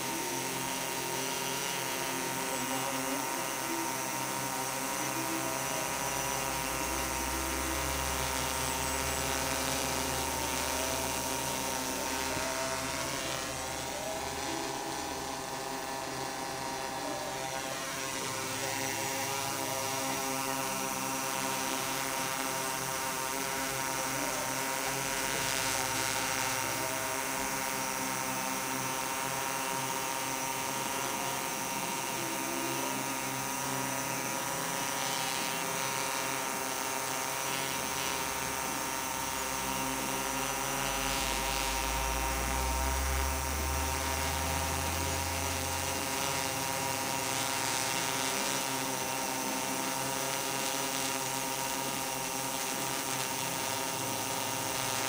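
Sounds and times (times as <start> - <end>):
drone propellers buzzing: 0.0 - 55.0.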